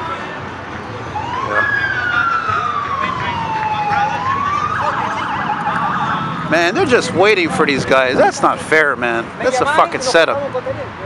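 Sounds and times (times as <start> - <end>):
police siren wailing: 1.0 - 7.6.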